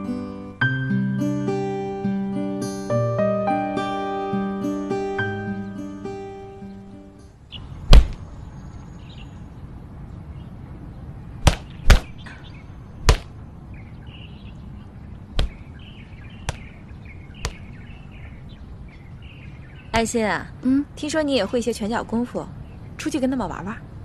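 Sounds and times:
soft guitar music: 0.0s - 7.3s
birds chirping: 5.2s - 24.0s
punches and kicks swishing: 7.9s - 8.2s, 11.4s - 12.2s, 13.0s - 13.3s, 15.4s - 15.6s.

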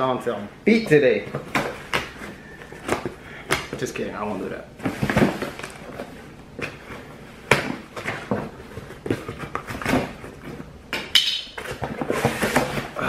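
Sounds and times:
sharp cardboard scrape: 11.6s - 13.0s.

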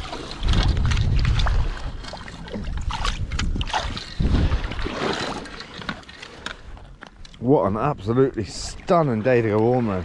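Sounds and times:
wind buffeting microphone: 0.0s - 2.0s, 2.6s - 5.1s
seawater sloshing around rocks: 0.0s - 10.0s.

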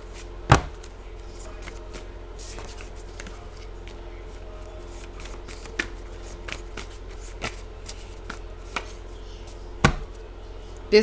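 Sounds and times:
cards being shuffled: 0.5s - 10.8s
cards tapping: 4.9s - 9.0s, 9.8s - 10.2s.

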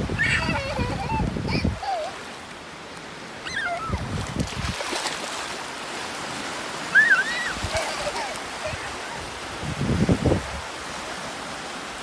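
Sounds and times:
waves washing onto shore: 0.0s - 12.0s
child crying out: 0.1s - 2.2s, 3.4s - 4.0s, 6.9s - 9.0s
water splashing around feet: 1.8s - 9.4s.

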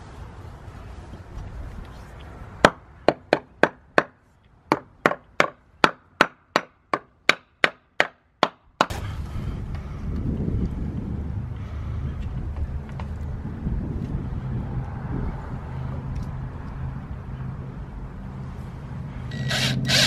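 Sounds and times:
hammer knocking wooden block: 2.6s - 8.9s.

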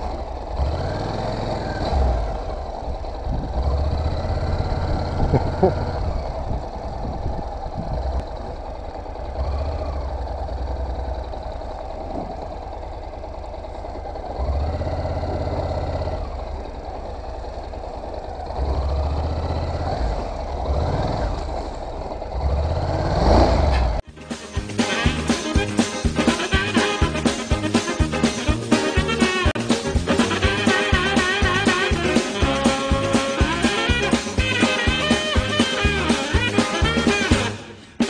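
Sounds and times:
motorcycle engine revving: 0.0s - 38.0s
music: 24.0s - 38.0s.

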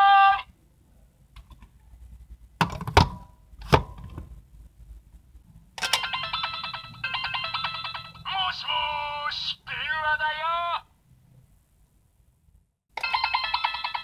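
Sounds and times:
electronic beeping jingle: 5.8s - 8.3s.

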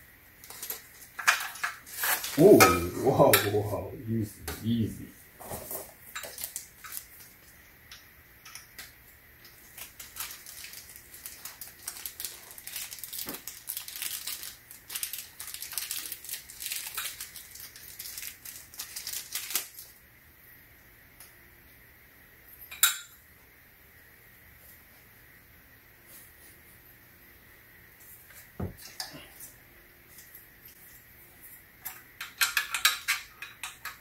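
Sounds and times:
plastic packaging crinkling: 5.5s - 7.6s, 9.4s - 20.0s
small parts clicking and tapping: 31.8s - 34.0s.

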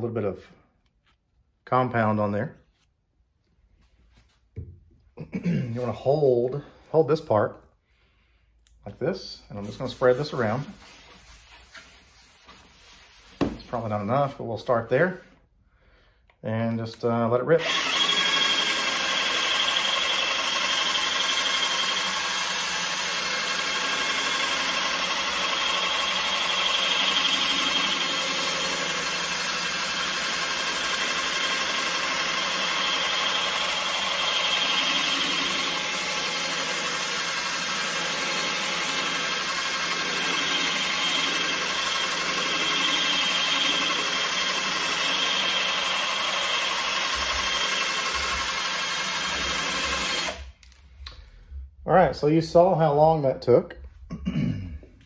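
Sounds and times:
drill spinning polishing pad: 9.6s - 14.0s, 17.6s - 50.6s.

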